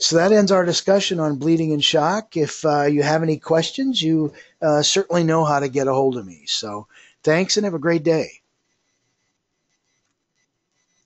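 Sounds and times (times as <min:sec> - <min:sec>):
faint background hiss: 0:00.0 - 0:11.0.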